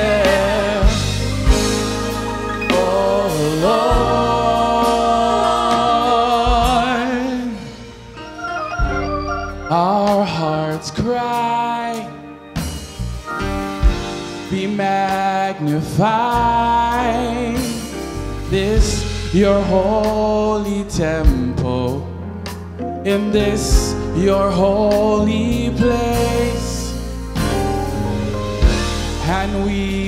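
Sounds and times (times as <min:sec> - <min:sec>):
man singing into microphone: 0:00.0 - 0:07.8, 0:09.7 - 0:12.3, 0:14.4 - 0:22.2, 0:23.0 - 0:27.1, 0:29.2 - 0:30.0
low bass: 0:00.0 - 0:15.0, 0:15.8 - 0:30.0.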